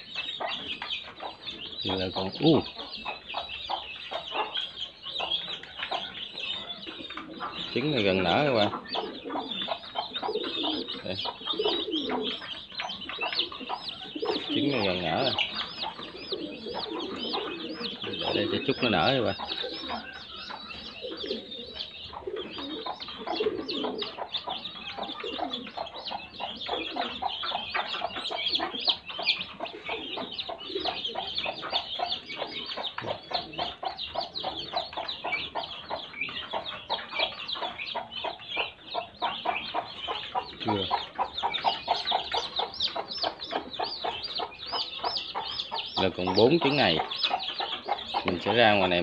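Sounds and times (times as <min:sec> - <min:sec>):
adult bird calls: 0:00.0 - 0:49.0
chicks peeping: 0:00.0 - 0:49.0.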